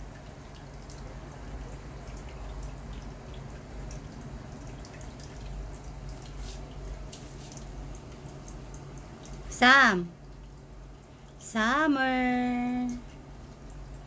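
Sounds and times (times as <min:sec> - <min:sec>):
cat lapping water: 0:00.0 - 0:09.5.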